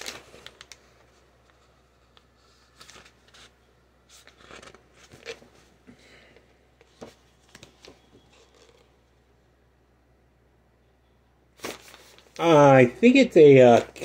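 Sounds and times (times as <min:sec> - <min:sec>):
book pages rustling: 0:00.0 - 0:05.8, 0:06.8 - 0:09.0, 0:11.6 - 0:12.4.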